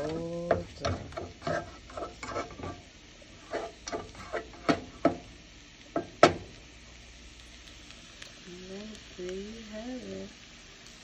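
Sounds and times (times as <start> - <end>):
spatula scraping a skillet: 0.0 - 5.3.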